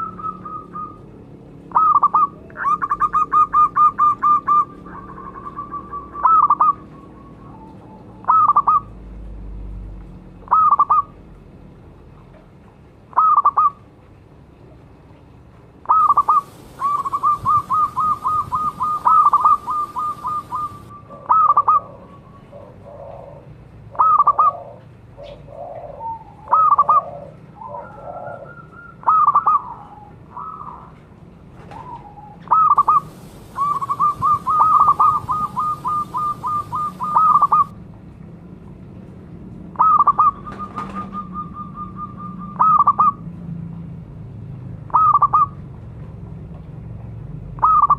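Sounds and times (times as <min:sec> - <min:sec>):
dove cooing: 0:01.7 - 0:08.9, 0:15.9 - 0:30.9, 0:31.7 - 0:37.7, 0:39.8 - 0:43.2.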